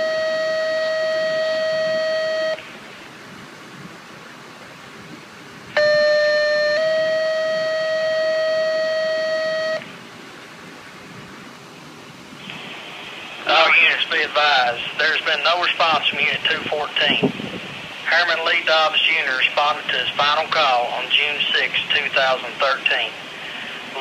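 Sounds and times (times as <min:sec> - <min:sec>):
dispatch radio two-tone paging tones: 0:00.0 - 0:02.7, 0:05.7 - 0:09.9, 0:12.4 - 0:17.3, 0:18.0 - 0:24.0.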